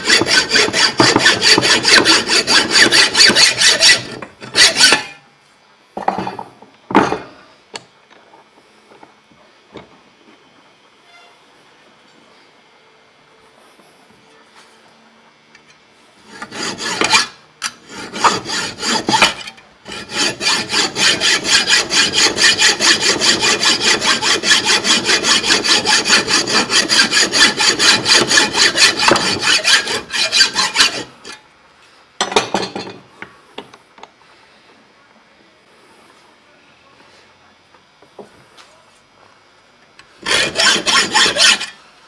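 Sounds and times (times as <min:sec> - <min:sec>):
hacksaw cutting through metal: 0:00.0 - 0:05.2, 0:16.2 - 0:31.4, 0:40.2 - 0:41.8.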